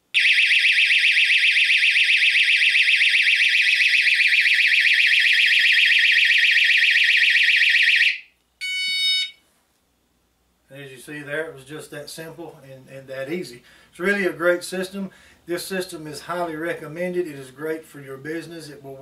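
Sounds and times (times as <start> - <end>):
warbling alarm siren: 0.2 - 9.4
short beep: 8.6 - 9.4.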